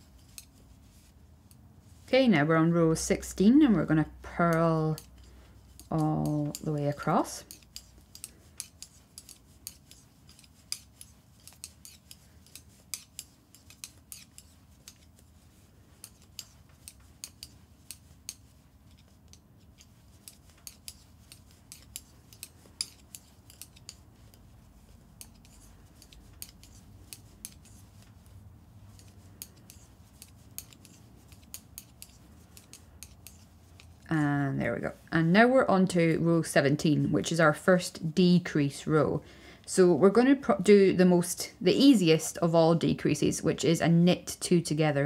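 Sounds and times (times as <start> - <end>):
metal knitting needles clicking: 0.1 - 1.6, 2.9 - 34.2.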